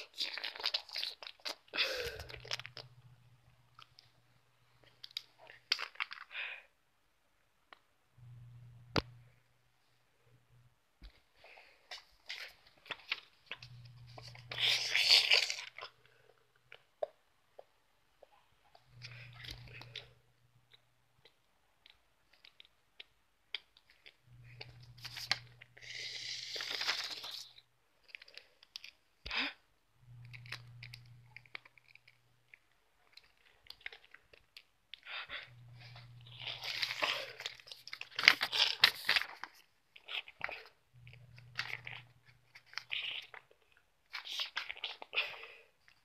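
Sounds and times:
low hum: 8.2s - 9.6s.

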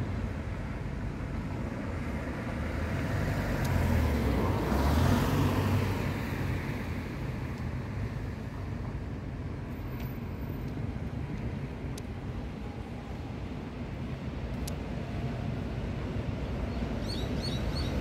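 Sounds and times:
traffic rumble: 0.0s - 18.0s
car passing by: 1.9s - 8.4s.

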